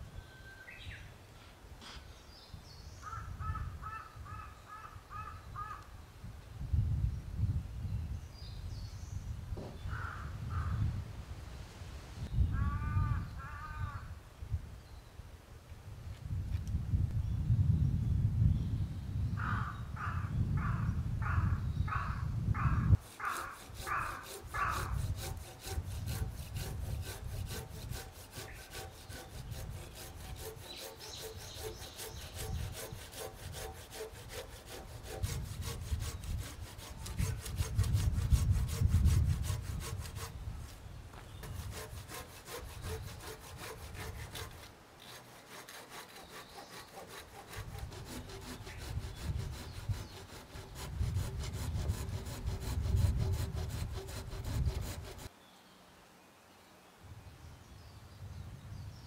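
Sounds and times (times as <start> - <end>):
hand saw rasping through wood: 23.0 - 40.4, 41.4 - 55.3.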